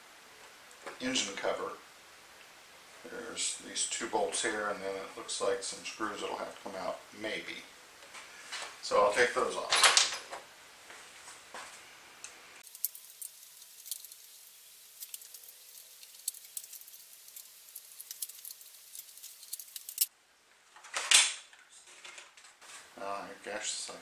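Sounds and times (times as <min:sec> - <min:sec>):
metallic ticks and clicks of screws: 0:15.0 - 0:20.1.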